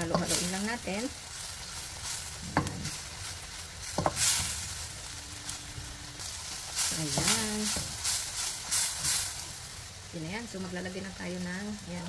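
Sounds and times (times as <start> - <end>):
onion and garlic sizzling: 0.0 - 12.0.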